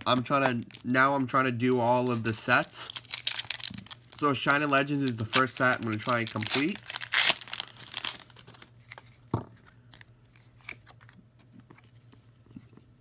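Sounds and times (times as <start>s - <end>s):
foil wrapper crinkling and tearing: 0.0s - 1.0s, 1.9s - 9.1s
cards rustling and clicking: 0.0s - 1.2s, 1.9s - 12.6s.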